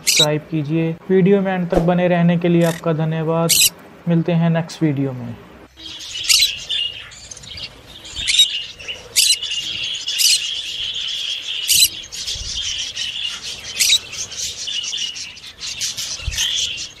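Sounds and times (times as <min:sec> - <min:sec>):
parrots chattering: 0:00.0 - 0:00.3, 0:02.6 - 0:02.9, 0:03.5 - 0:03.8, 0:05.8 - 0:17.0.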